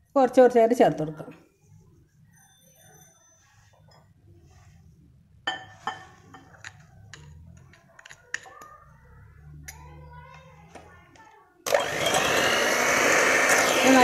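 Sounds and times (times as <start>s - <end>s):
spoon tapping glass bowl: 5.5s - 7.3s.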